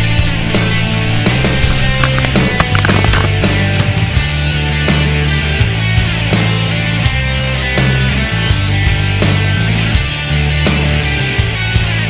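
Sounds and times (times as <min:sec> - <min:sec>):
bass notes: 0:00.0 - 0:10.1
guitar: 0:00.0 - 0:12.0.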